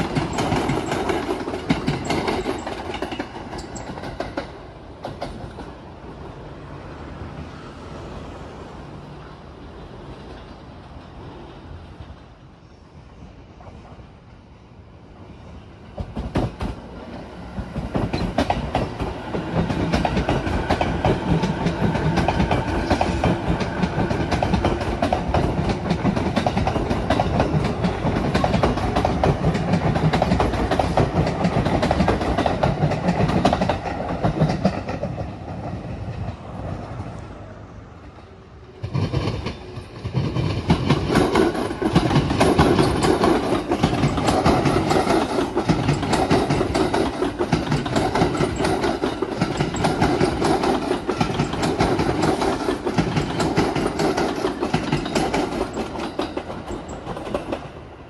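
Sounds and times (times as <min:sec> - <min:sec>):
train wheel clatter: 0:00.0 - 0:05.9, 0:15.9 - 0:37.2, 0:38.7 - 0:57.9
electric train passing: 0:00.0 - 0:58.0.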